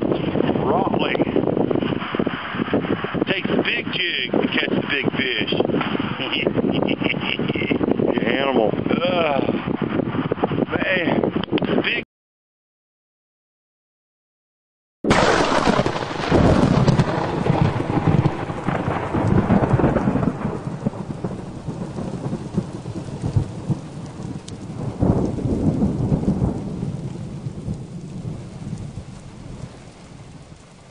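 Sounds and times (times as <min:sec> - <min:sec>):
rain hiss: 0:15.1 - 0:30.9
rolling thunder: 0:15.1 - 0:30.9.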